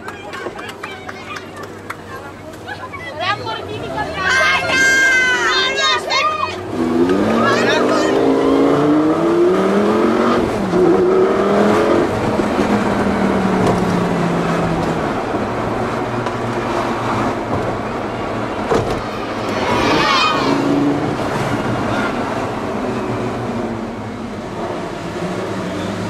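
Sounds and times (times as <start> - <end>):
car engine revving: 6.6 - 26.0.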